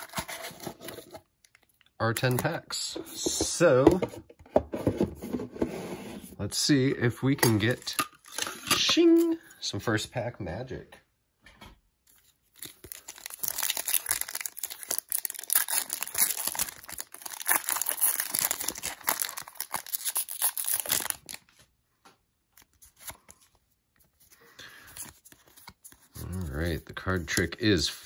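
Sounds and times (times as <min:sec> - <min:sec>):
foil wrapper crinkling and tearing: 0:12.2 - 0:21.5.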